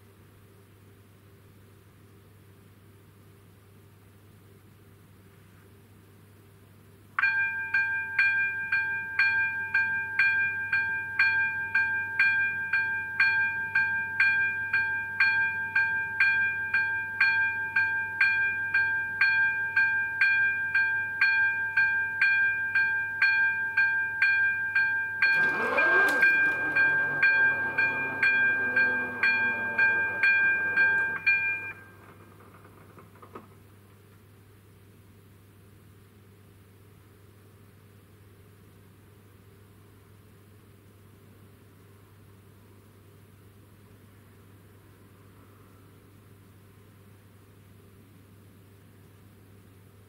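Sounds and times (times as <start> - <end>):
level crossing warning bell: 7.2 - 32.4.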